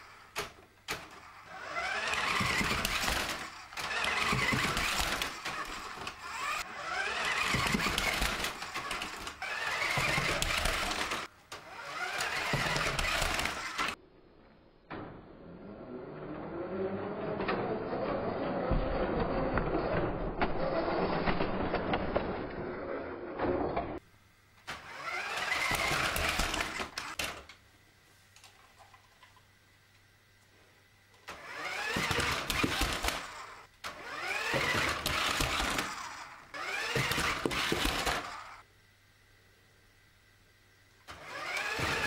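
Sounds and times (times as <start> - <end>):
toy truck electric motor whining: 0.0 - 14.0, 24.7 - 27.4, 31.2 - 38.7, 41.1 - 42.0.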